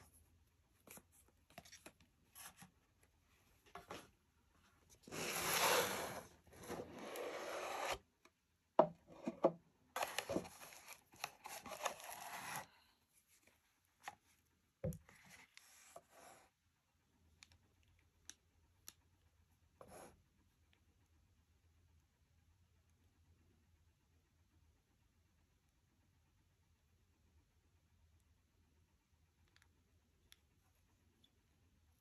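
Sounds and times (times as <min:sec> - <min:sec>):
cardboard box and tissue rustling: 0:05.0 - 0:07.9, 0:10.0 - 0:12.7.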